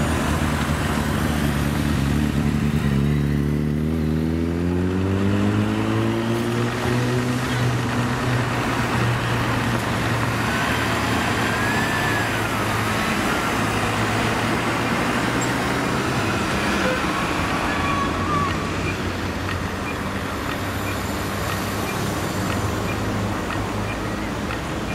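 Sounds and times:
heavy vehicle engine hum: 0.0 - 24.9
road traffic: 0.0 - 24.9
faint siren wailing: 10.2 - 19.1.

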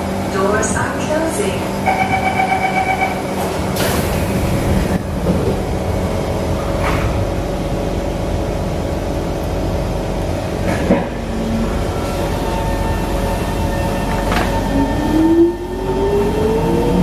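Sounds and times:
train equipment hum: 0.0 - 17.0
train doors sliding shut: 3.3 - 5.6, 6.6 - 7.4, 10.6 - 15.2.

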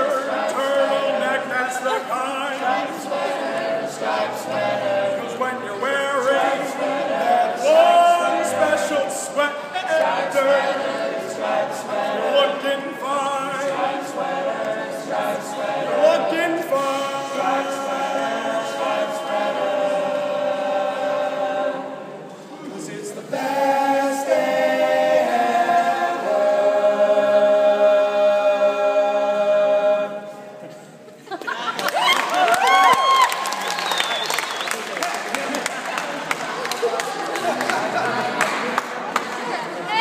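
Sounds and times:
group singing a cappella: 0.0 - 31.0.

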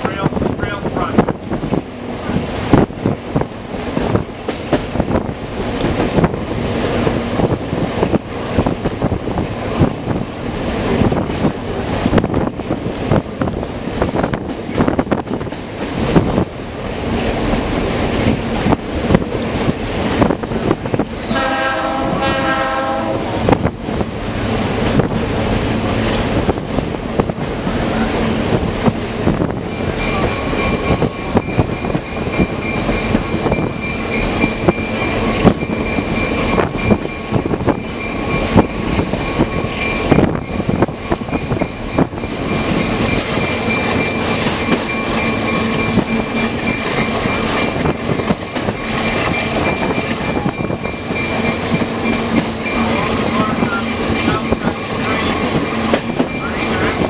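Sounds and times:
train wheels rumbling on rails: 0.0 - 57.0
high squeal from wheels: 21.2 - 21.5
locomotive horn blast: 21.2 - 23.6.

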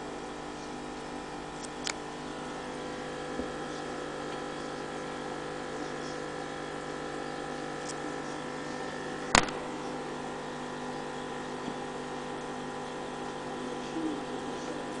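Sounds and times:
aquarium pump humming: 0.0 - 15.0
sharp click: 9.3 - 9.6.

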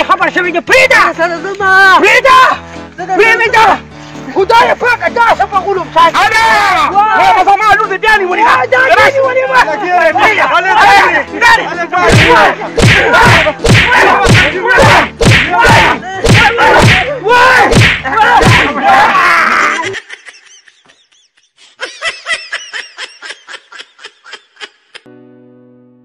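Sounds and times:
person laughing loudly: 18.7 - 25.1.

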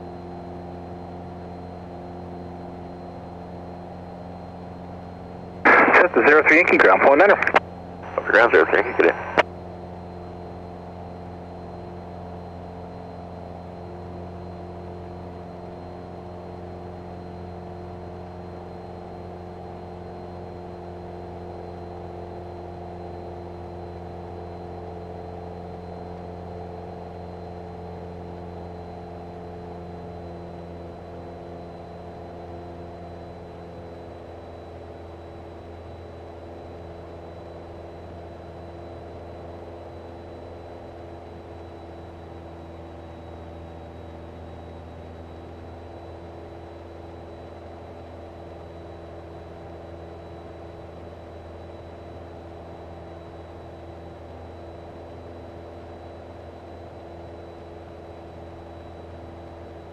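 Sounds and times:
airplane engine and propeller droning: 0.0 - 59.9
faint thin high whine: 5.7 - 9.4.

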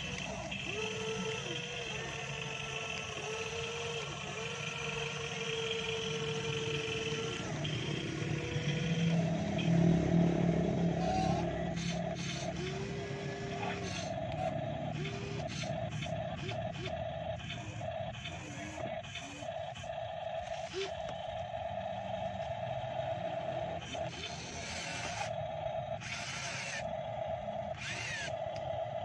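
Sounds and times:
electric motors whining: 0.0 - 29.0
clicks: 27.8 - 28.7.

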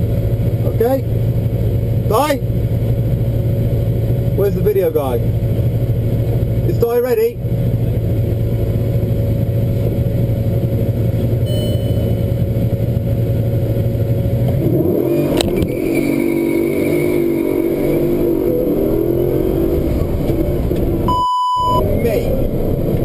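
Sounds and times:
car engine at steady revs: 0.0 - 23.0
faint high whine: 11.4 - 12.4.

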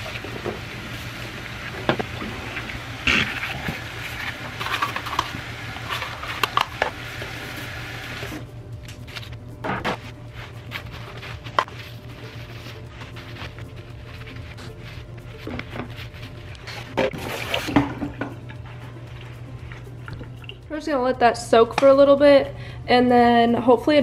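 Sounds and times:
water running from a tap: 0.0 - 8.3.

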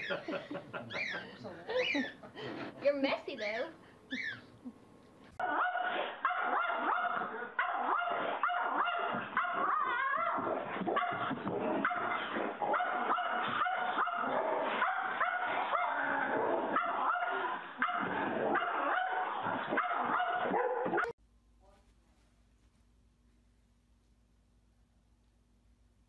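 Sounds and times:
dogs barking and yipping: 5.4 - 21.2.

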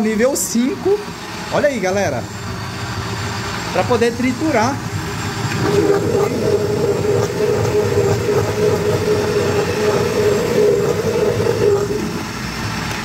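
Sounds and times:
blender running: 4.8 - 12.7.

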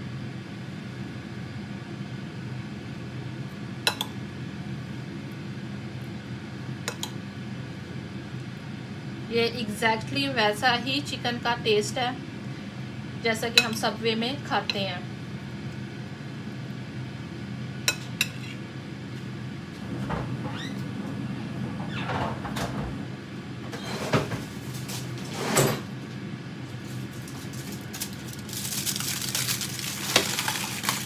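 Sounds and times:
steady low hum: 0.0 - 25.2.

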